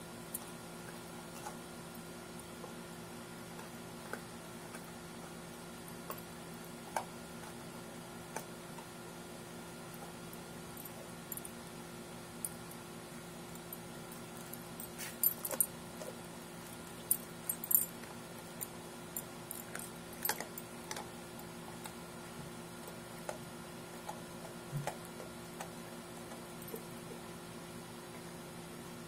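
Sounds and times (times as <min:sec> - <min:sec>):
puppy crunching frozen fish: 0:14.2 - 0:26.7.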